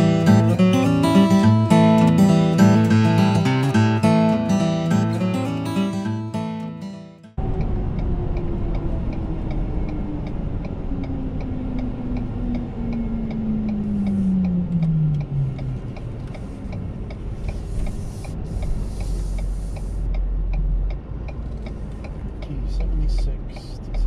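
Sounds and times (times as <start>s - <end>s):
truck engine and road rumble: 7.3s - 24.0s
engine whine falling in pitch: 7.4s - 17.4s
turn signal clicking: 7.5s - 24.0s.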